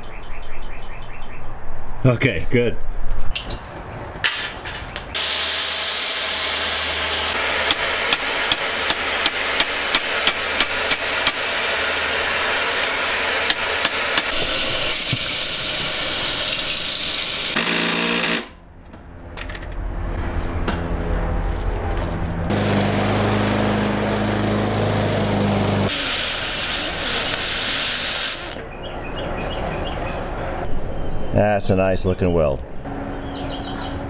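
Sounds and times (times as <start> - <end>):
arc welding crackle and hiss: 5.2 - 18.4, 25.9 - 28.6
sharp welding pops: 7.6 - 11.5, 12.8 - 15.3, 25.9 - 28.6.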